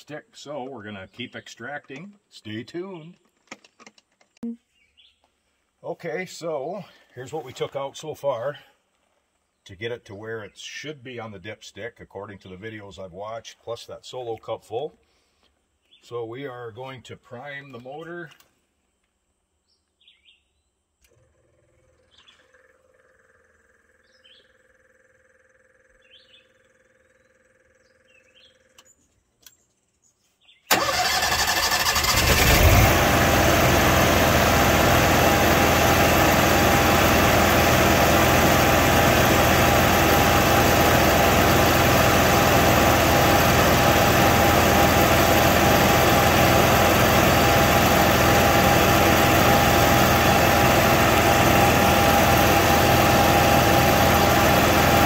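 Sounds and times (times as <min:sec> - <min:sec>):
generator engine starting and running: 0:21.0 - 0:22.8, 0:30.7 - 0:55.0.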